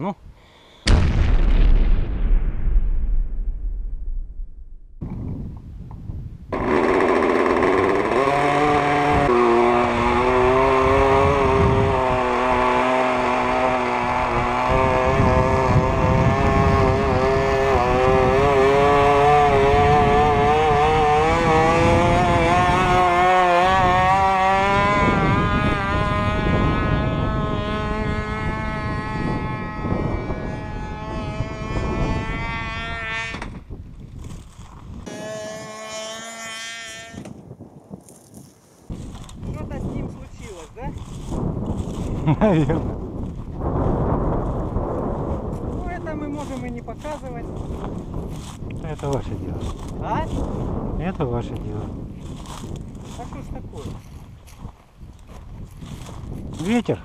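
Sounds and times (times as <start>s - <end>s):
model aircraft engine buzzing: 6.5s - 33.7s, 34.3s - 42.3s.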